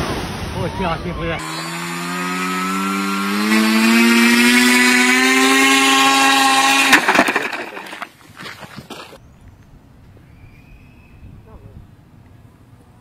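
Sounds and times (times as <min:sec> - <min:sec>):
electric motor and propeller whining: 0:01.4 - 0:08.1
sharp crack of airframe breaking: 0:04.6 - 0:08.1
clattering knocks of pieces: 0:06.1 - 0:08.2.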